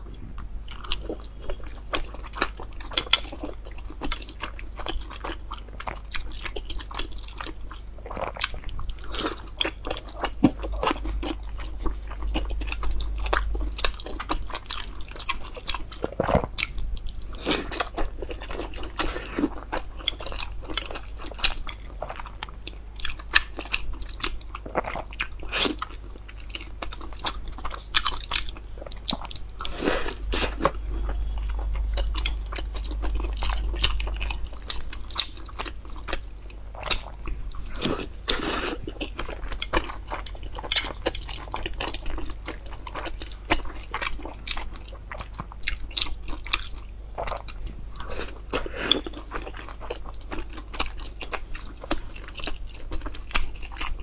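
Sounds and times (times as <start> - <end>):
person chewing dumplings: 0.0 - 54.0.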